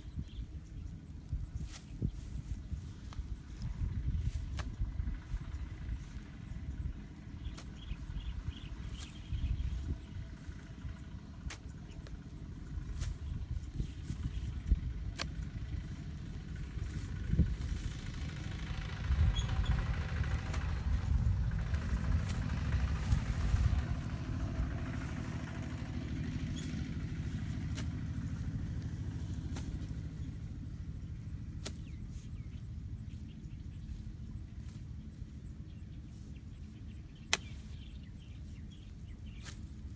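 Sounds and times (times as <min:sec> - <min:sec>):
low rumble: 0:00.0 - 0:39.9
hoe chopping wet earth: 0:07.5 - 0:07.8, 0:11.4 - 0:11.8, 0:15.0 - 0:15.5, 0:27.5 - 0:30.1, 0:31.4 - 0:32.2, 0:37.2 - 0:37.7, 0:39.3 - 0:39.9.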